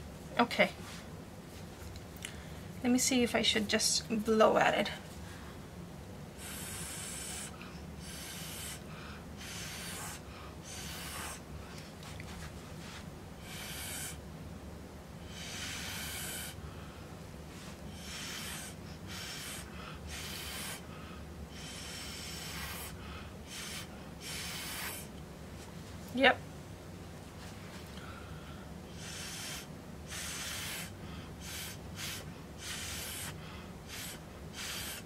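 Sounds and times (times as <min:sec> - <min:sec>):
breath blown through a straw: 0:06.4 - 0:08.8, 0:09.4 - 0:11.5, 0:13.4 - 0:14.2, 0:15.3 - 0:16.6, 0:17.9 - 0:20.9, 0:21.5 - 0:25.1, 0:28.9 - 0:35.0.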